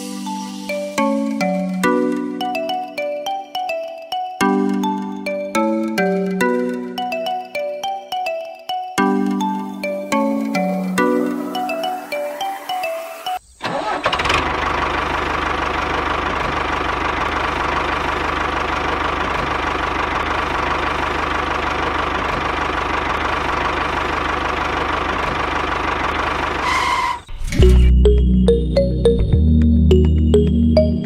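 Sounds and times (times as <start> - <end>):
diesel tractor engine running: 13.6 - 29.2.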